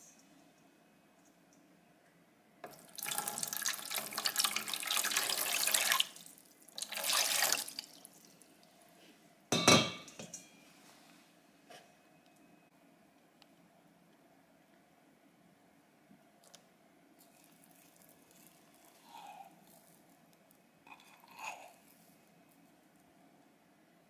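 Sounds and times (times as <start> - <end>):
water pouring into container: 2.7 - 8.3.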